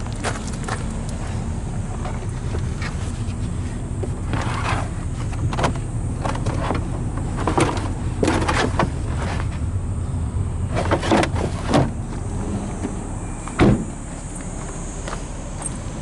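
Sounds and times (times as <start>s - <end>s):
low steady hum: 0.0s - 16.0s
carpet cover rustling: 2.0s - 9.7s.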